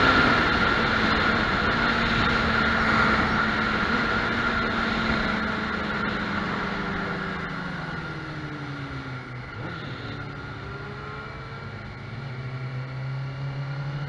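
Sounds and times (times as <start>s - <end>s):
wind rush: 0.0s - 8.1s
motorcycle engine revving: 0.0s - 14.0s.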